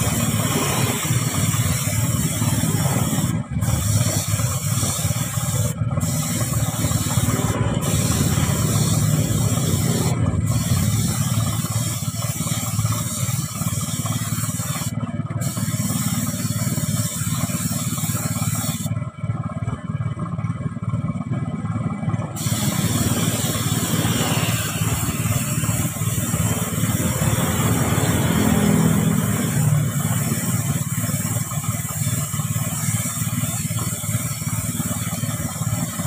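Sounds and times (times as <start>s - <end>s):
paint spray gun hissing: 0.0s - 19.0s, 22.3s - 36.0s
steady low hum: 0.0s - 27.6s.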